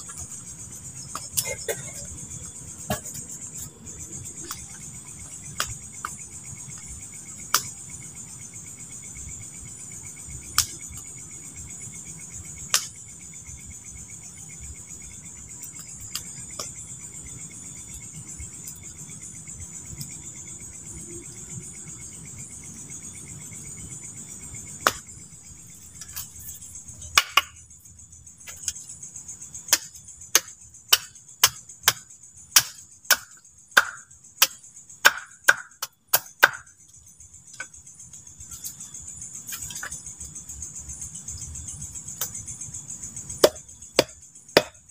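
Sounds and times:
crickets chirring: 0.0 - 44.9
knocks on wood: 43.4 - 44.8.

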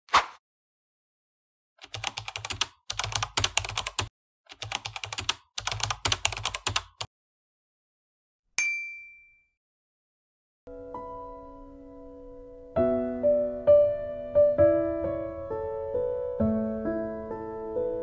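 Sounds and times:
bright ding: 8.6 - 9.6.

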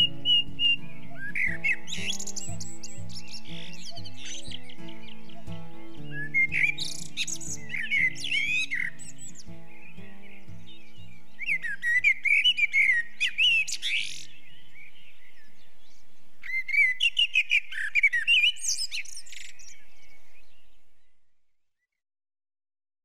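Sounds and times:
music track: 0.0 - 11.6
birds chirping: 0.0 - 21.5.

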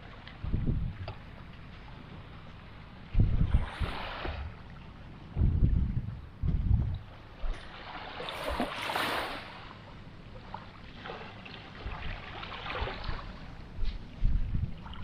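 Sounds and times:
wind buffeting microphone: 0.0 - 2.3, 3.0 - 7.6, 11.8 - 15.0
small waves lapping on sand: 1.4 - 5.0, 7.2 - 14.0.

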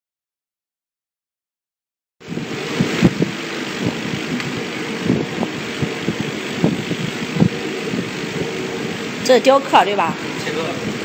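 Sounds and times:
air and fan hiss: 2.2 - 11.0.

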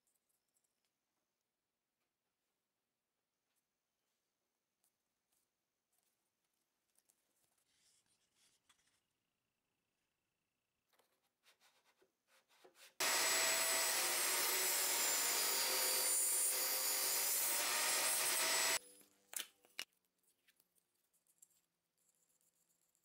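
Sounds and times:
table saw cutting wood: 13.0 - 18.8.

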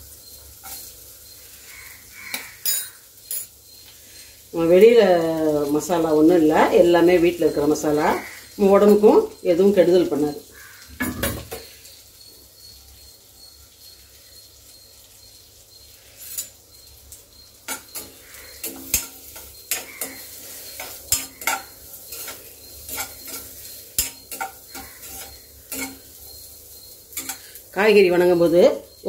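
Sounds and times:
carrots sizzling in oil: 0.0 - 29.0
steel spoon scraping pan: 0.6 - 4.4, 15.9 - 16.6, 17.3 - 28.6.

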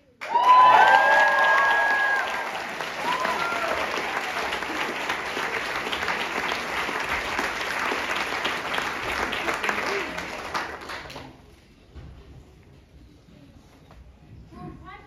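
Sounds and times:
audience applauding: 0.2 - 11.4.

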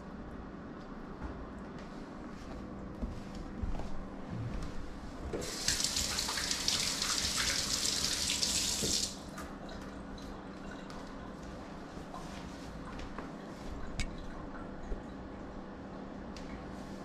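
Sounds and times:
kitchen tap running: 5.4 - 9.3.

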